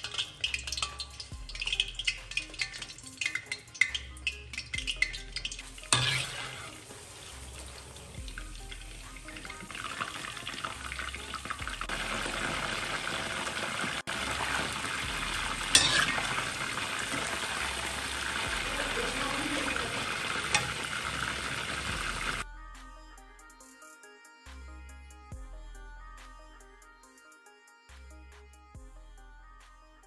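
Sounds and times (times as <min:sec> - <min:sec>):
chicken deep-frying in oil: 0:00.0 - 0:22.4.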